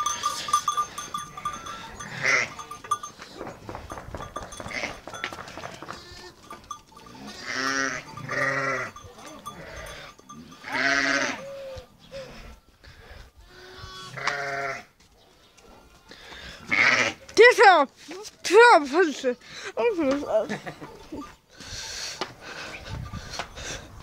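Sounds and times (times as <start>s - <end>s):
sheep bleating: 1.4s - 2.8s, 5.9s - 11.6s, 13.4s - 14.9s.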